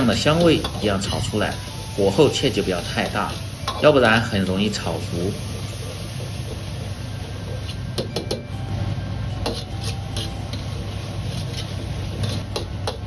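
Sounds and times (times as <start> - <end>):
ladle scraping a wok: 9.3 - 13.0.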